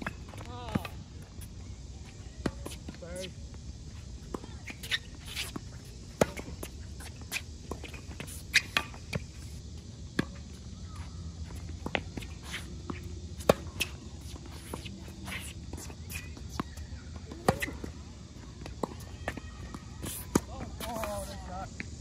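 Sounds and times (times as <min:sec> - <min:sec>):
racket hitting tennis ball: 0:06.2 - 0:09.3, 0:11.7 - 0:17.9
footsteps on court: 0:10.2 - 0:21.9.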